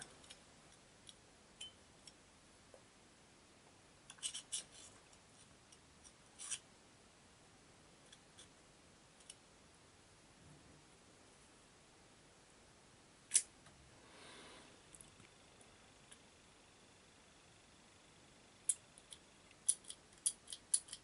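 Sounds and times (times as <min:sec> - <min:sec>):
small lock parts clicking: 0:18.7 - 0:21.0.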